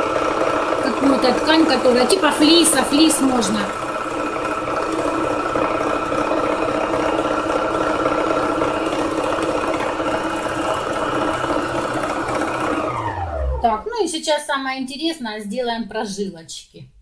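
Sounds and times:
needle-felting machine running: 0:00.0 - 0:13.8.

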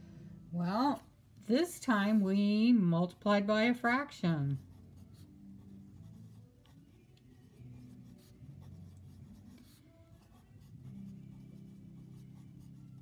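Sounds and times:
pen scratching on paper: 0:04.5 - 0:13.0.

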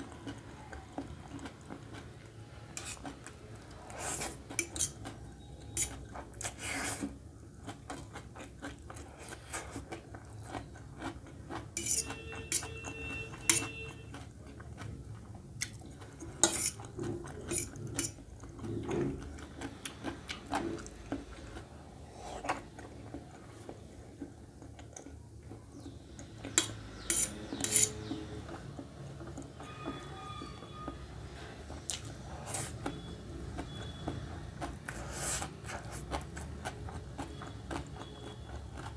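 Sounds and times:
chewing: 0:00.0 - 0:38.9
fork scraping metal plate: 0:11.8 - 0:13.8, 0:16.4 - 0:16.8, 0:27.0 - 0:28.2.

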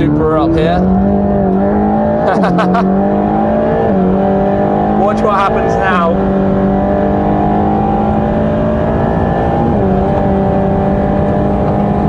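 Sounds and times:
car engine at full throttle: 0:00.0 - 0:12.0.

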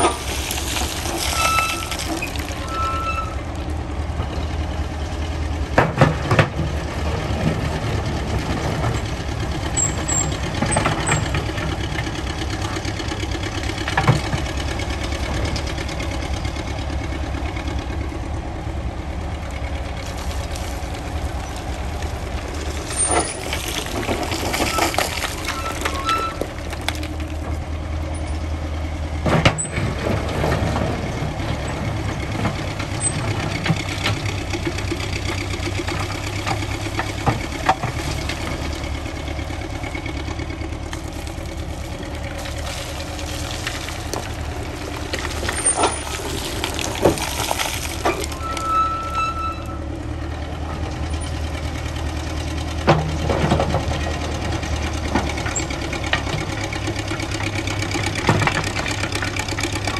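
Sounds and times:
rock and stone rushing: 0:00.0 - 0:03.4, 0:20.0 - 0:27.6, 0:29.6 - 0:49.7
shovel engine running under load: 0:00.0 - 0:59.9.

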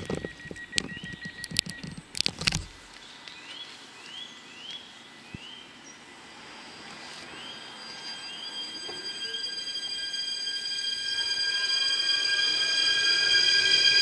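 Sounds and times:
electric train whine: 0:06.0 - 0:14.0
short rising chirps: 0:07.3 - 0:14.0.

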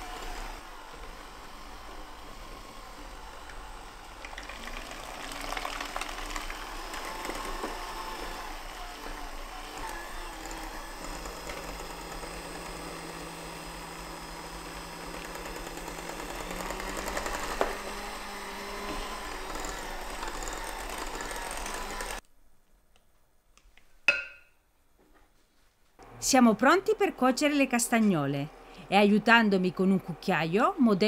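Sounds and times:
electric hand mixer running: 0:00.0 - 0:22.2.

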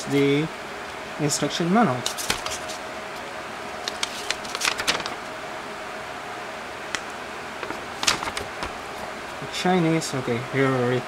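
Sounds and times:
faint steady hum: 0:00.0 - 0:11.0
paper crackling and rustling: 0:02.0 - 0:02.8, 0:03.8 - 0:05.4, 0:07.6 - 0:09.1.

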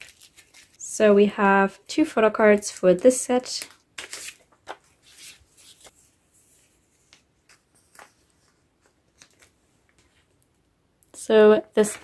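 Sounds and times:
cards rustling into plastic pockets: 0:00.0 - 0:00.8, 0:03.4 - 0:06.1, 0:06.9 - 0:10.4.

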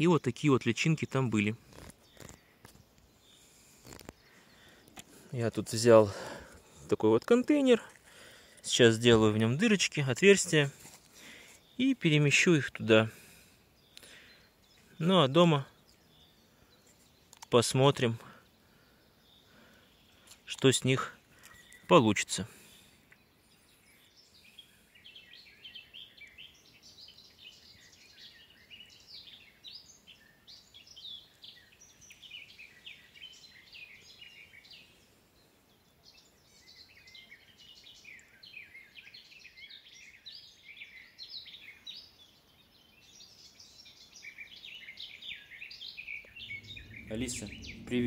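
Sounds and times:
songbirds chirping: 0:00.0 - 0:48.0.

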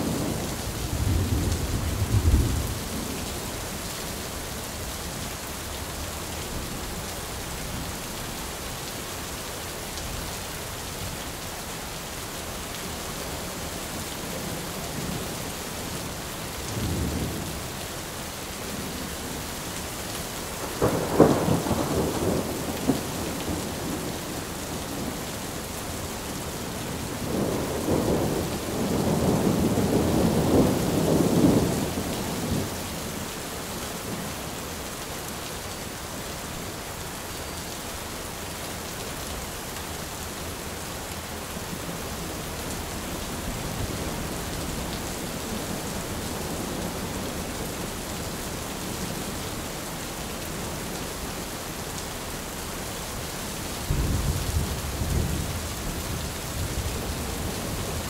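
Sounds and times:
thunder rumbling: 0:00.0 - 0:03.2, 0:20.6 - 0:25.2
steady rainfall: 0:00.0 - 0:58.0.

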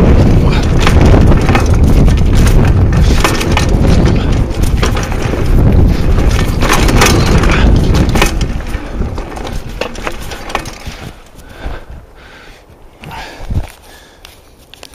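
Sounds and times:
bike knocks and rattles: 0:00.0 - 0:11.9
bike tyres rumbling on dirt: 0:00.0 - 0:14.2.

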